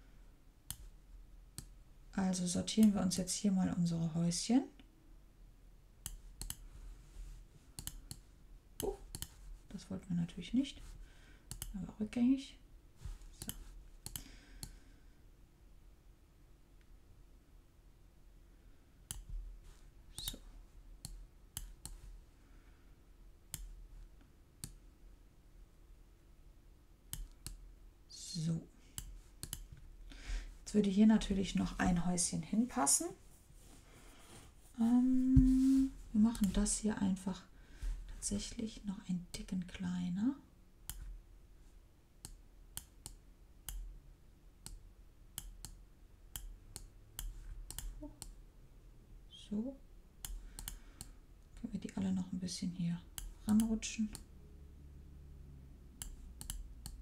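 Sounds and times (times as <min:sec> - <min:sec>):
computer mouse clicks: 0:06.0 - 0:06.7, 0:07.8 - 0:09.4, 0:11.5 - 0:11.8, 0:13.3 - 0:14.8, 0:19.1 - 0:19.3, 0:20.1 - 0:20.4, 0:21.0 - 0:22.0, 0:23.5 - 0:23.8, 0:24.6 - 0:24.8, 0:27.1 - 0:27.6, 0:29.0 - 0:29.8, 0:36.3 - 0:36.7, 0:42.2 - 0:43.9, 0:45.4 - 0:48.4, 0:50.2 - 0:51.1, 0:53.1 - 0:54.3, 0:56.0 - 0:57.0.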